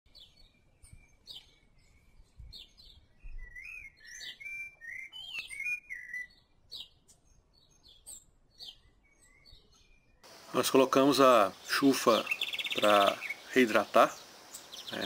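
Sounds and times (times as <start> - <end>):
birds chirping: 0.1 - 15.0
bird warbling whistled song: 0.2 - 7.0, 11.7 - 15.0.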